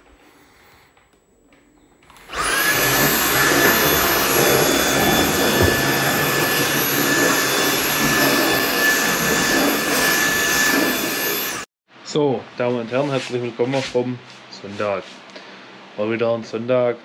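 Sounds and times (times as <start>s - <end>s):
stick vacuum cleaner whine: 2.0s - 11.7s.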